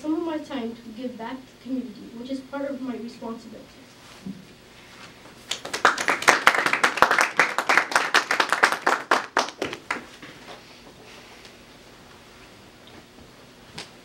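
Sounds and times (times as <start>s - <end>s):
small audience clapping: 5.4s - 10.4s.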